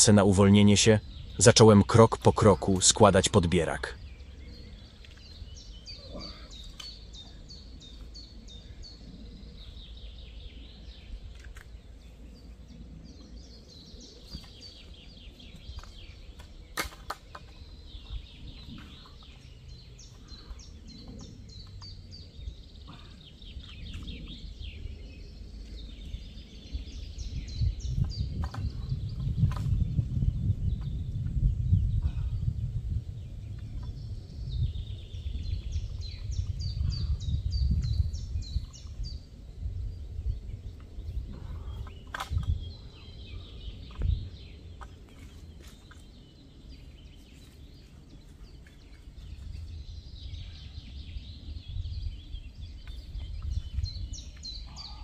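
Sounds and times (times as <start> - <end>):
wind rumble on microphone: 0.0 - 1.9, 3.9 - 55.0
songbirds chirping: 0.0 - 55.0.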